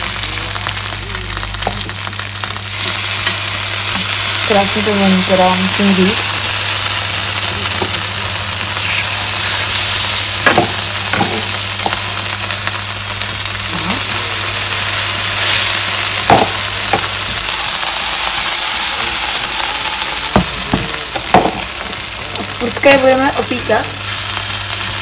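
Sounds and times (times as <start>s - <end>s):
meat sizzling in a frying pan: 0.0s - 25.0s
knocks against a pan: 10.4s - 11.4s, 20.3s - 21.7s.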